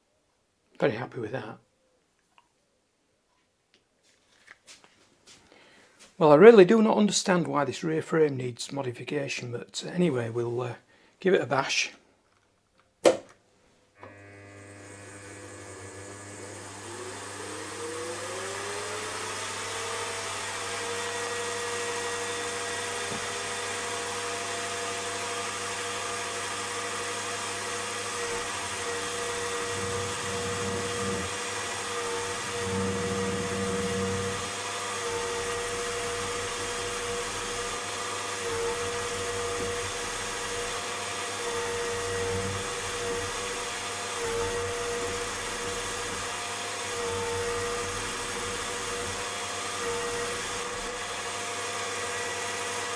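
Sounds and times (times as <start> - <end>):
milling machine motor whine: 14.0 - 52.9
end mill cutting metal: 14.1 - 52.9.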